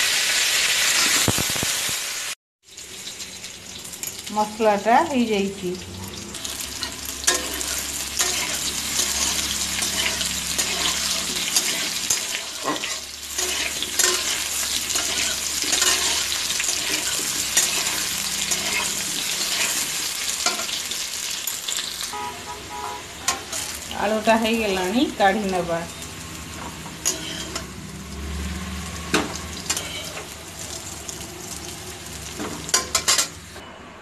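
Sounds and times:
potatoes sizzling in oil: 0:00.0 - 0:33.6
metal spatula scraping a pan: 0:06.1 - 0:21.0, 0:23.0 - 0:23.8, 0:26.5 - 0:27.8, 0:28.9 - 0:30.8, 0:32.2 - 0:33.4.

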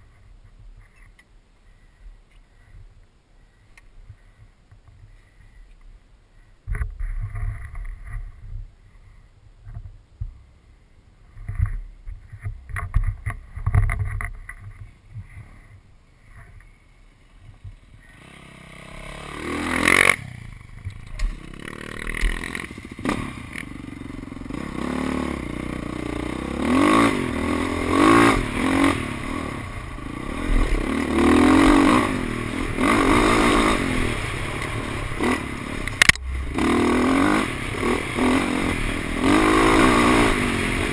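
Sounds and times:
dirt bike engine revving: 0:18.0 - 0:40.9.

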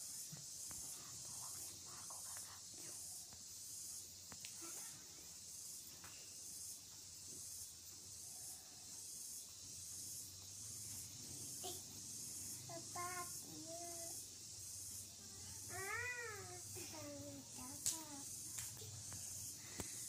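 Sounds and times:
faint high hiss: 0:00.0 - 0:20.0.

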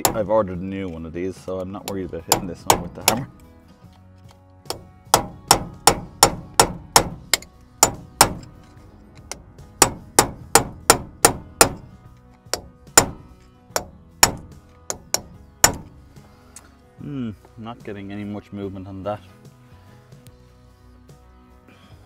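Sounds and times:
hammer striking steel punch: 0:00.0 - 0:00.3, 0:01.9 - 0:03.4, 0:04.7 - 0:08.5, 0:09.3 - 0:16.0.

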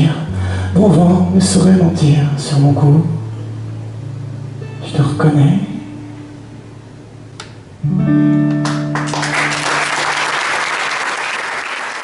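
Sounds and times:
acoustic guitar chord ringing: 0:00.3 - 0:09.6
audience applause: 0:08.6 - 0:12.0.

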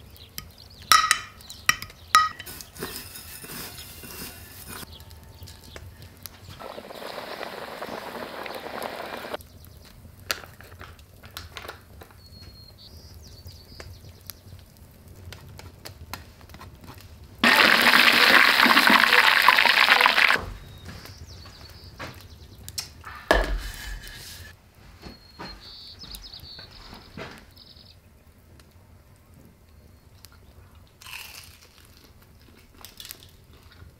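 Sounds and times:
gentle hiss: 0:05.8 - 0:09.6.

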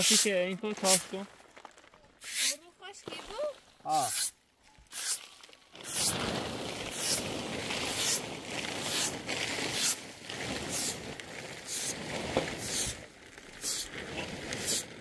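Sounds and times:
steady rustling noise: 0:00.0 - 0:15.0
scraping strokes: 0:02.2 - 0:06.2.

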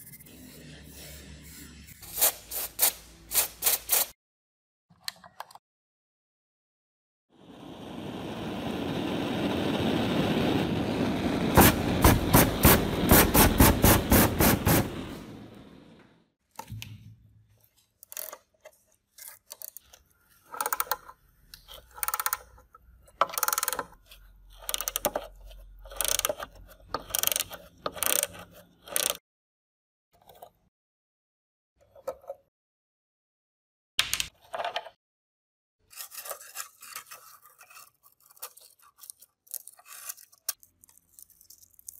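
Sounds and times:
torch hissing: 0:07.4 - 0:15.8
ratchet wrench clicking: 0:23.3 - 0:23.9, 0:25.9 - 0:26.4, 0:27.0 - 0:28.3, 0:28.9 - 0:29.2.

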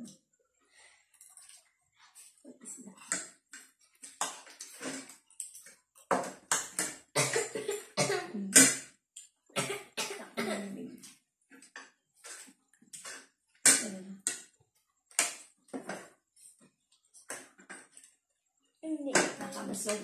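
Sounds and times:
person coughing: 0:07.2 - 0:08.4, 0:09.6 - 0:10.8.

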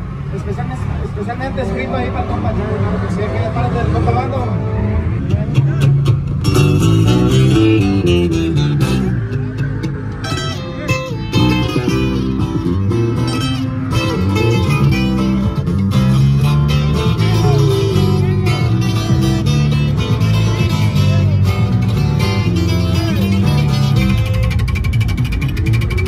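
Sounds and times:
electric bass: 0:01.1 - 0:26.0
plucked double bass: 0:05.0 - 0:26.0
acoustic guitar: 0:05.2 - 0:26.0.

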